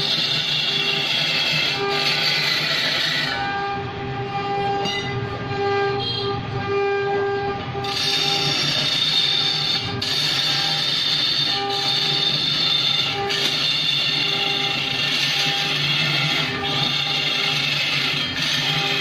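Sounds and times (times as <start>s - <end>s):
turning tool cutting wood: 0.0s - 3.4s, 7.8s - 19.0s
wood lathe humming: 0.0s - 3.5s, 7.8s - 19.0s.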